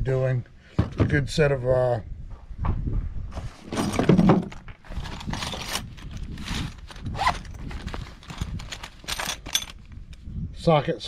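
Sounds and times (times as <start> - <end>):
zipper: 4.9 - 9.2
metal sockets clinking: 8.2 - 10.2.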